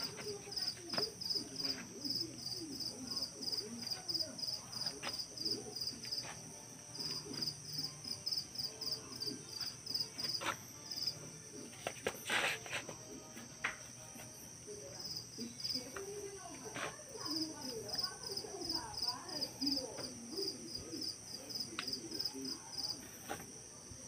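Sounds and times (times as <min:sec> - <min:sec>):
cricket chirping: 0:00.1 - 0:11.7, 0:17.1 - 0:24.0.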